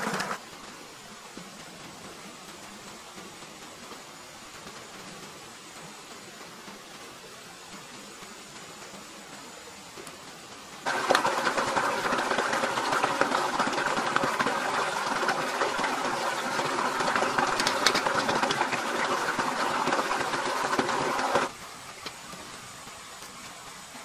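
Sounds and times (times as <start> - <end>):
water gurgling into kettle: 10.8 - 21.5.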